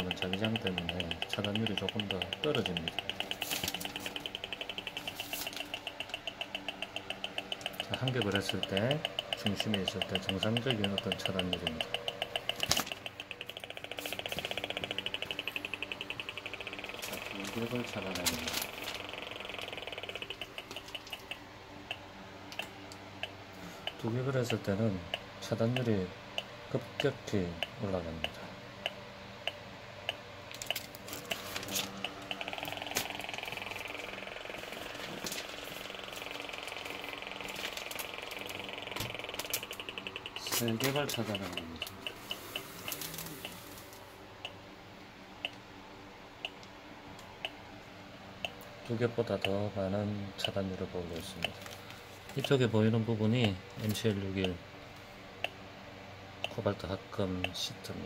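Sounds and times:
meter ticking: 0.0 - 44.6, 46.4 - 47.6, 48.4 - 51.7, 52.3 - 54.6, 56.4 - 57.7.

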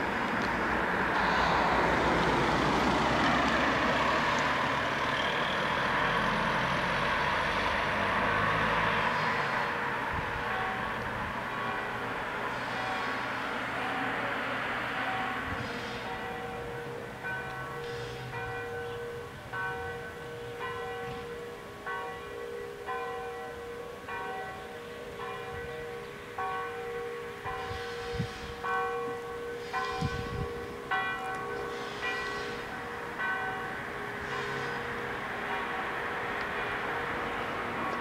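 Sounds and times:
bells ringing: 10.4 - 13.2, 13.8 - 36.2.

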